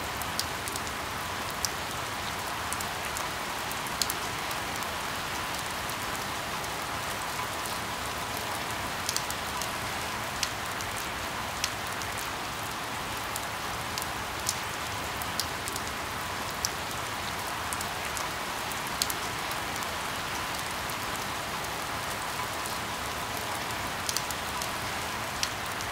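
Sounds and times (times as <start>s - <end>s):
steady rain hiss: 0.0s - 25.9s.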